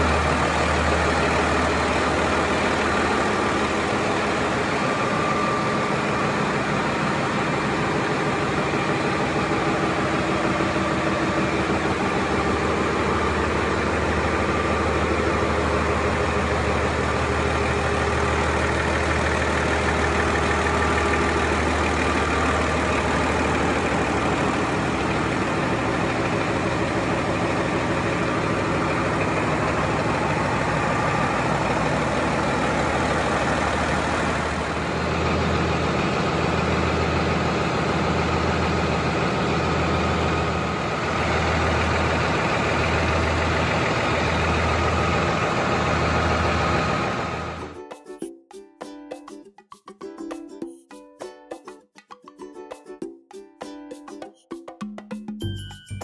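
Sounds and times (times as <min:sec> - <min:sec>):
diesel engine running: 0:00.0 - 0:47.8.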